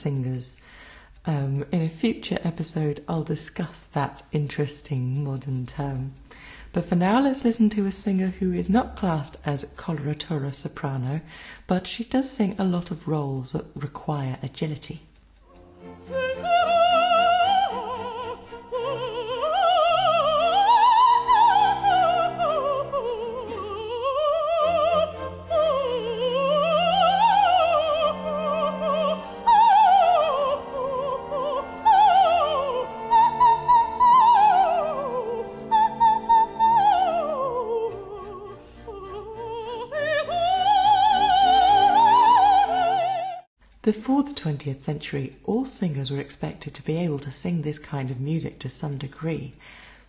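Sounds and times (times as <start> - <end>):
instrumental accompaniment: 15.1 - 43.5
operatic soprano singing: 16.0 - 43.5.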